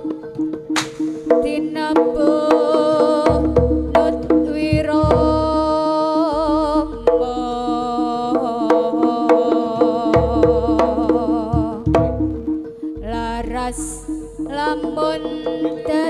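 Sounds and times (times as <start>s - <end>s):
hand drum strokes: 0.0s - 16.0s
ensemble music: 10.4s - 15.9s.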